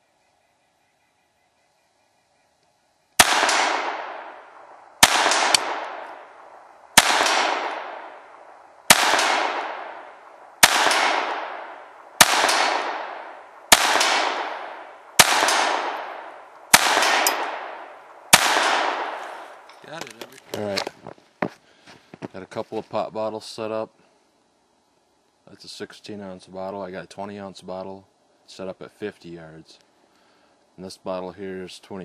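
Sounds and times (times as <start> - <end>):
pistol shots: 3.2 - 19.6.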